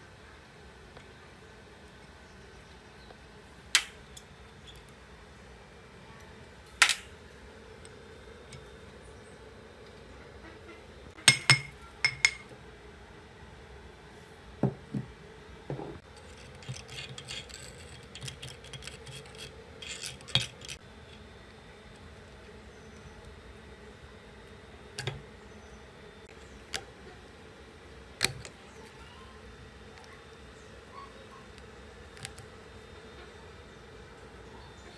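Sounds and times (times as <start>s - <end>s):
hammer striking metal: 11.2s - 12.5s
small metal clinks and scrapes: 16.0s - 20.8s.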